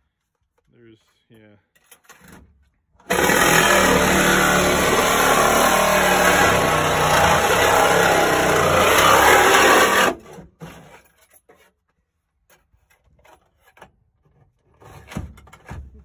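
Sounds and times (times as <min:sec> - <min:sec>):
reciprocating saw cutting metal: 0:03.1 - 0:10.2.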